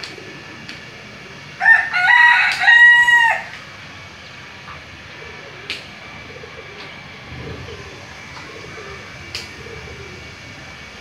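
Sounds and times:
rooster crowing: 0:01.6 - 0:03.6.

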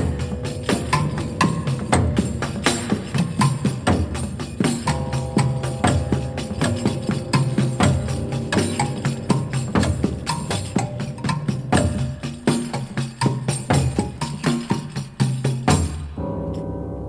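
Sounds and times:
percussion hits: 0:00.0 - 0:16.7
held keyboard chords: 0:04.9 - 0:12.1.

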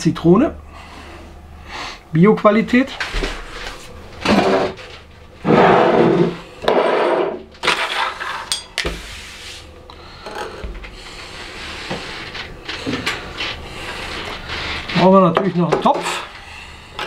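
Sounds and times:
glass jars sliding on table: 0:05.4 - 0:07.4.

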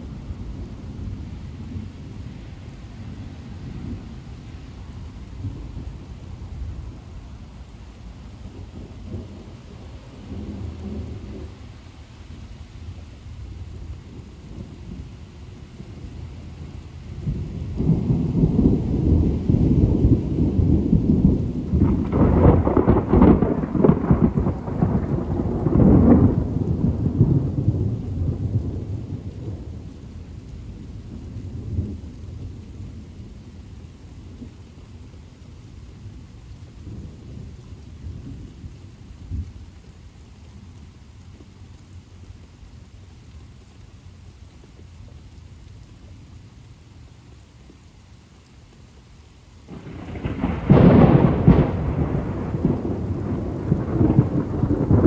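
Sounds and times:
thunder rumbling: 0:00.0 - 0:35.4, 0:49.6 - 0:55.0
rain: 0:00.0 - 0:55.0.

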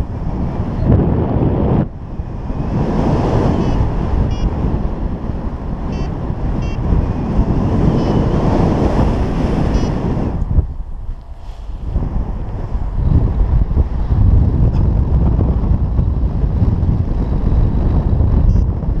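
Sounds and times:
wind buffeting microphone: 0:00.0 - 0:19.0
short high beeps: 0:03.6 - 0:04.5, 0:05.9 - 0:06.8, 0:07.9 - 0:08.4, 0:09.7 - 0:10.0.

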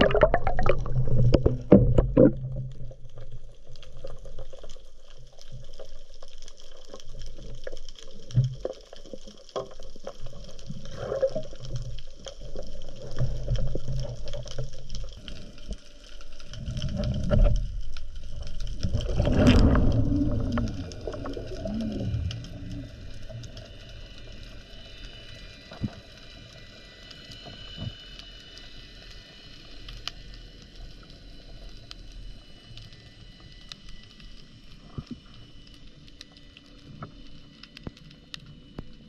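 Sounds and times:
bubbling gurgles: 0:00.0 - 0:15.5, 0:16.5 - 0:23.8
underwater rumble: 0:00.0 - 0:39.0.

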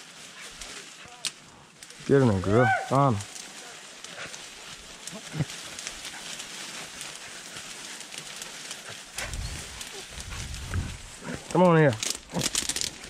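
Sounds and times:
footsteps through dry brush: 0:00.0 - 0:13.0
low rumble: 0:09.2 - 0:11.5.

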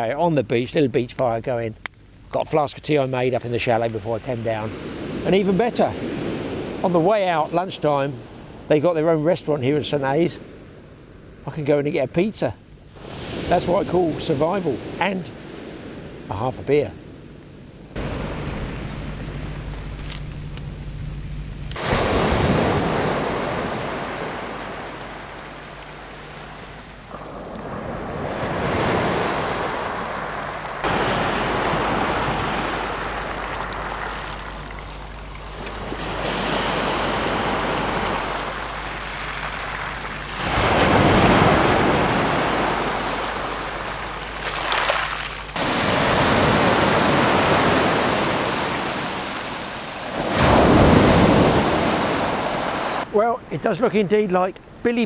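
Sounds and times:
waves breaking on shingle: 0:21.8 - 0:53.0.

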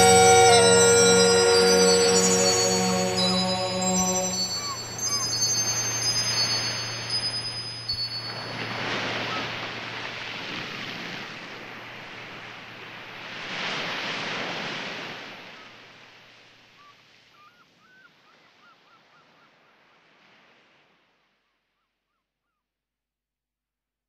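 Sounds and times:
chime ringing: 0:00.0 - 0:09.6
waves breaking on beach: 0:04.5 - 0:16.6.

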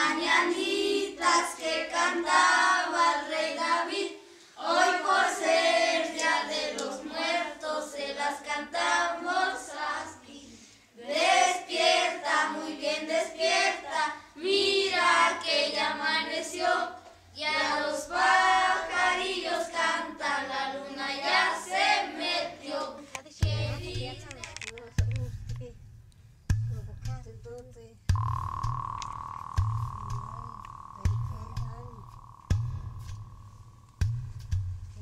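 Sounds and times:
children singing: 0:00.0 - 0:10.4, 0:11.0 - 0:24.3.

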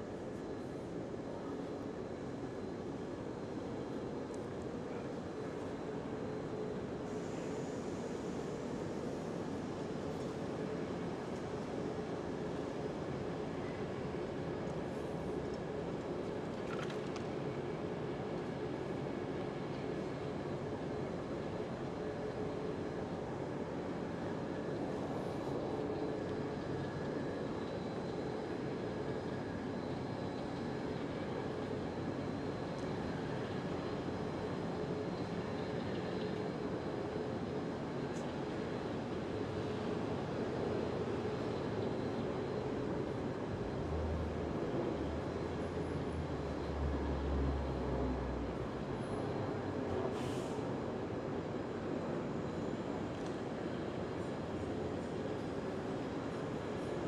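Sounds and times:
city street traffic: 0:38.2 - 0:57.0
brief hiss: 0:50.1 - 0:50.6.

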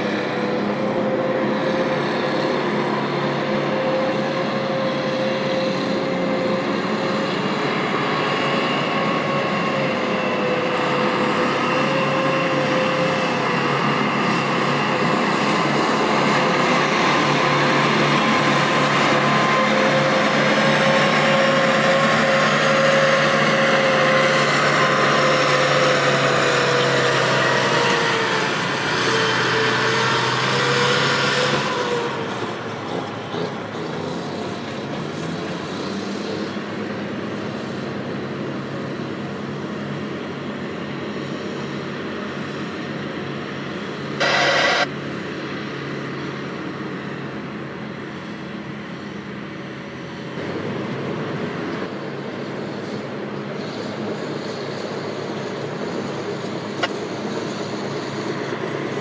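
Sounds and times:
diesel engines running hard: 0:00.0 - 0:59.0
short high beep: 0:44.2 - 0:44.9.

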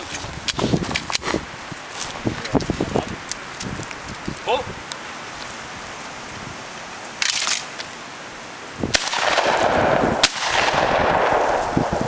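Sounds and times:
shotgun firing: 0:08.9 - 0:12.0.

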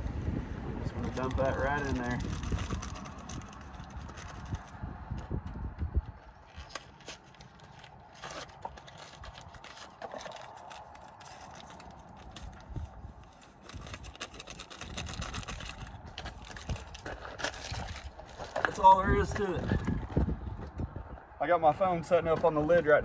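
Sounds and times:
paper packet crinkling: 0:01.0 - 0:04.8, 0:06.4 - 0:18.9
small clicks and scrapes: 0:01.0 - 0:20.9.

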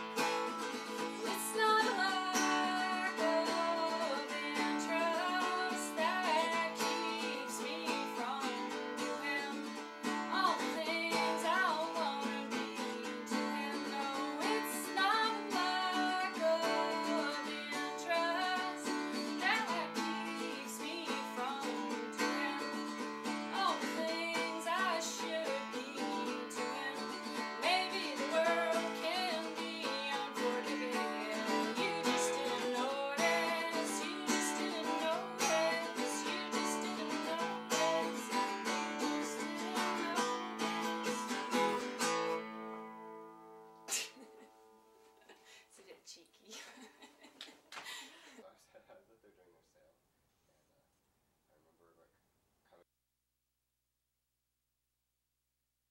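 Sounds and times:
woman singing: 0:00.0 - 0:42.0
acoustic guitar: 0:00.0 - 0:48.6.

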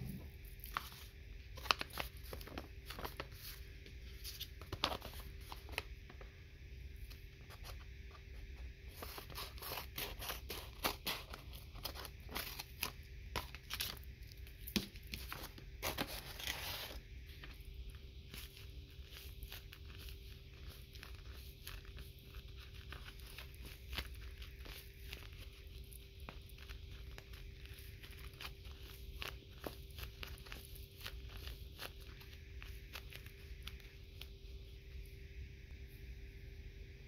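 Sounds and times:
paper rustling: 0:00.6 - 0:05.9, 0:14.8 - 0:17.6.

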